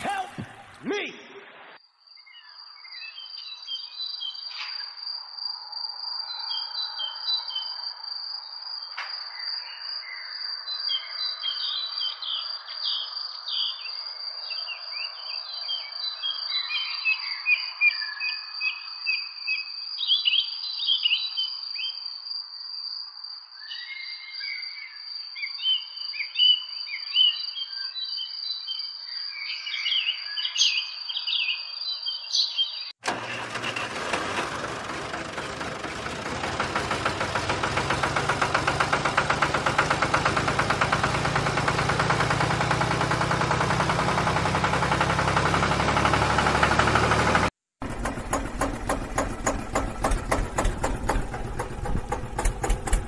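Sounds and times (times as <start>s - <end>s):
birds chirping and twittering: 29.4s - 32.9s.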